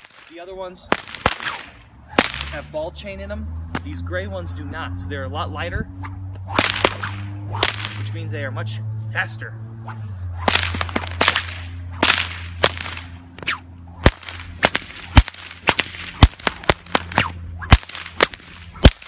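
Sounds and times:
whip cracking: 0:00.0 - 0:02.7, 0:05.9 - 0:08.2, 0:09.8 - 0:19.0.

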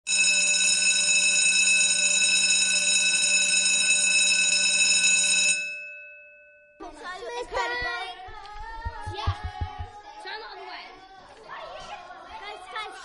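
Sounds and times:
electric bell ringing: 0:00.1 - 0:06.8.

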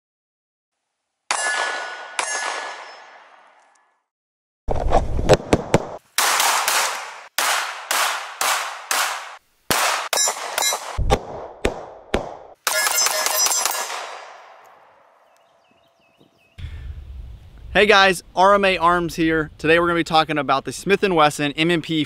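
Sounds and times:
pistol shots with echo: 0:01.3 - 0:03.4, 0:06.2 - 0:11.0, 0:11.7 - 0:15.0
ringing metallic clangs: 0:01.3 - 0:03.6, 0:12.7 - 0:13.9.

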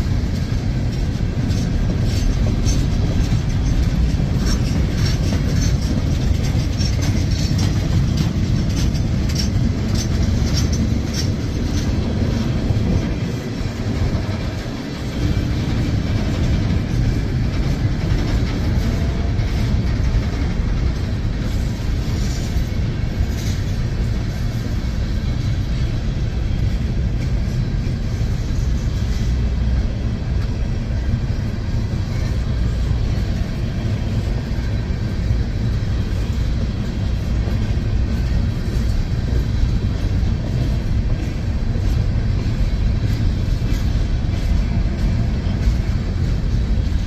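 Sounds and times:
freight train cars rolling: 0:00.0 - 0:47.0.

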